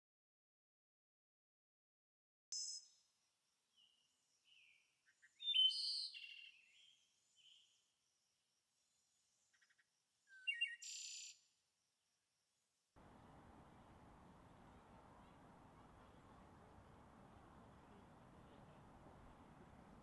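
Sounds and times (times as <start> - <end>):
songbirds chirping: 3.7 - 7.9, 13.0 - 20.0.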